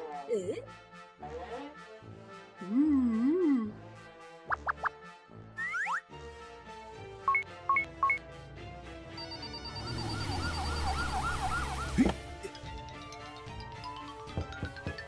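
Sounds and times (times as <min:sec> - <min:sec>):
background music: 0:00.0 - 0:15.0
short beeps: 0:09.2 - 0:11.3
emergency vehicle siren: 0:09.2 - 0:12.2.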